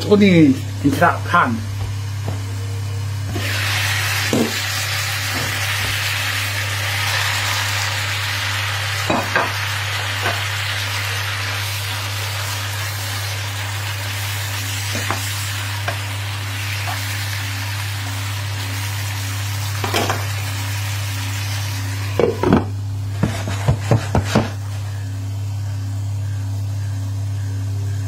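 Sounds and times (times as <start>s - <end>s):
meat and onions sizzling in pan: 3.2s - 25.0s.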